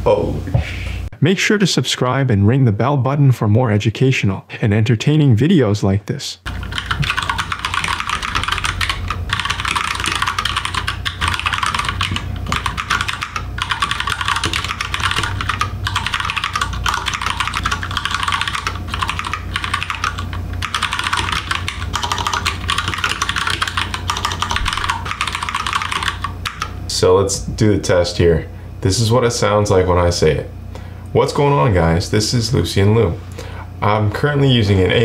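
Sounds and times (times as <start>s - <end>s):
steady low hum: 0.0s - 35.0s
fast keyboard typing: 6.5s - 26.8s.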